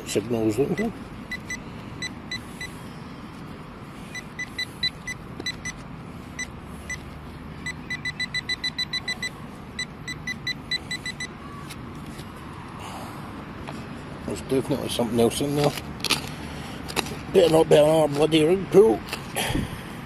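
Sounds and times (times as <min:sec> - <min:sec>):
metal detector pinpointer beeping: 0:00.6 - 0:02.8, 0:04.1 - 0:05.8, 0:06.4 - 0:07.0, 0:07.6 - 0:11.4.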